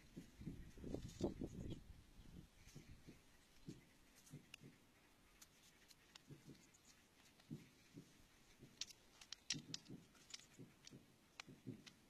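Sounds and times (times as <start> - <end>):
metal pick tapping rock: 7.4 - 12.0
stones knocking together: 8.6 - 12.0.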